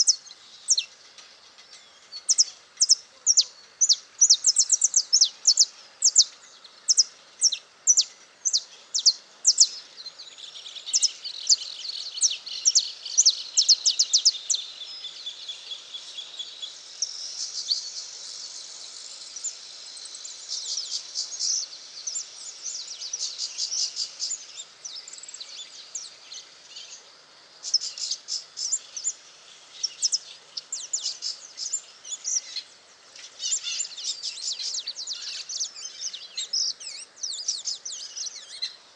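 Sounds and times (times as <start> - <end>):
finch chirping: 0.0 - 18.0, 27.6 - 38.8.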